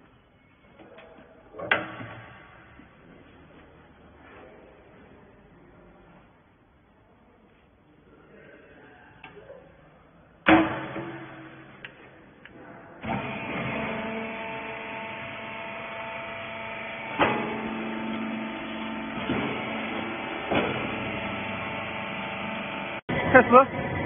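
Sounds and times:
motor and hydraulic pump humming: 0:13.0 - 0:24.0.

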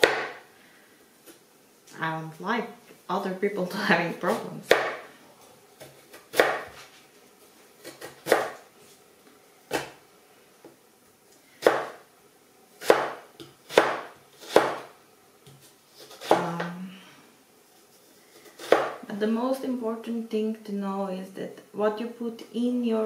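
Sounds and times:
knife chopping on cutting board: 0:00.0 - 0:00.4, 0:04.7 - 0:05.0, 0:05.8 - 0:06.8, 0:07.8 - 0:08.6, 0:11.6 - 0:12.0, 0:12.8 - 0:14.9, 0:18.5 - 0:19.0.

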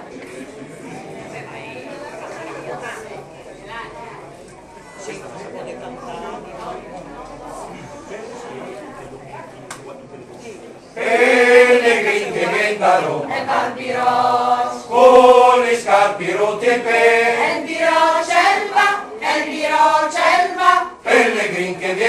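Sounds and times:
mixed choir singing unaccompanied: 0:11.0 - 0:22.0.

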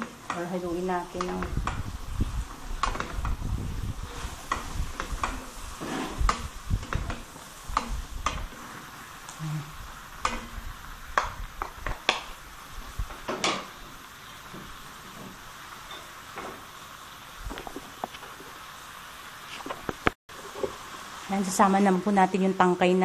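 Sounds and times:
food sizzling: 0:00.0 - 0:23.0
wooden spatulas clacking on pan: 0:02.8 - 0:03.4, 0:04.5 - 0:05.6, 0:06.2 - 0:08.6, 0:10.2 - 0:10.6, 0:13.1 - 0:13.8.

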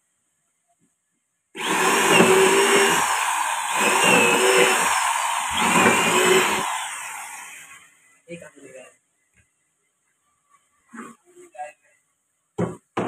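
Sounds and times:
electric drill boring into wood: 0:01.6 - 0:07.8.

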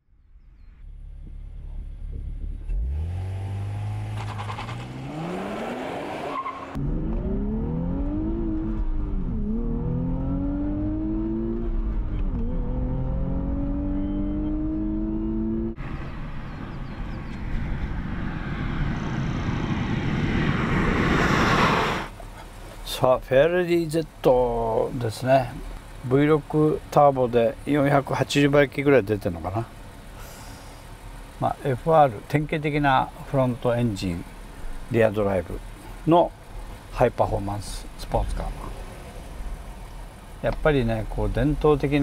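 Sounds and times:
car driving past: 0:02.4 - 0:22.7
car engine revving hard: 0:02.7 - 0:15.8.

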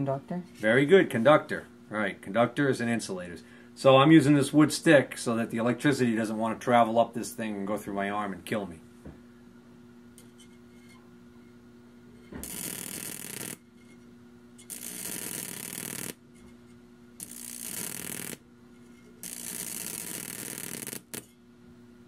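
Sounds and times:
steady transformer hum: 0:00.0 - 0:22.0
loud buzzing electric arcs: 0:12.3 - 0:13.7, 0:14.6 - 0:16.2, 0:17.2 - 0:18.5, 0:19.2 - 0:21.4.

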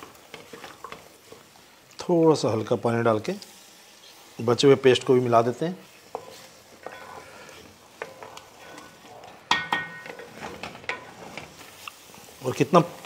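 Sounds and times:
spatula scraping metal pan: 0:06.0 - 0:11.8.

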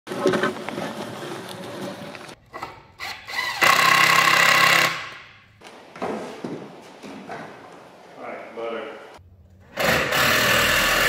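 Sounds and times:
power tool running: 0:03.2 - 0:05.2, 0:09.7 - 0:11.0.

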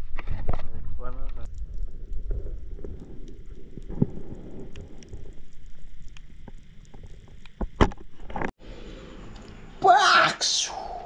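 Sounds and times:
low underwater rumble: 0:00.7 - 0:07.7
underwater crackle of clicks: 0:01.5 - 0:08.5.

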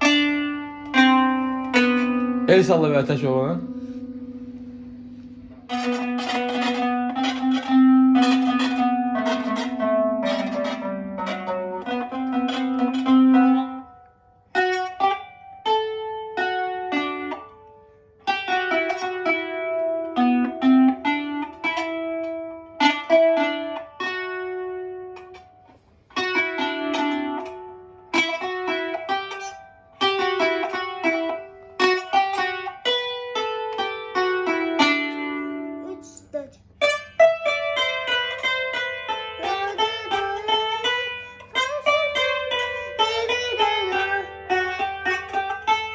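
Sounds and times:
plucked zither notes: 0:00.0 - 0:45.9.

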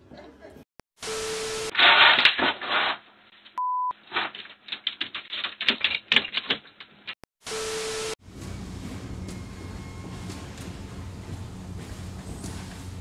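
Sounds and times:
short electronic beep: 0:03.6 - 0:03.9.

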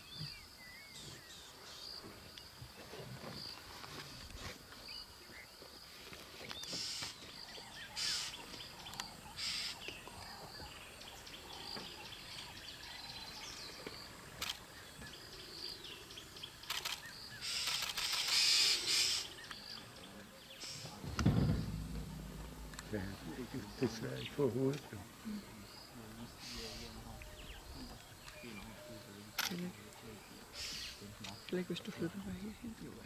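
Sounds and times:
faint high drone: 0:21.2 - 0:24.0.

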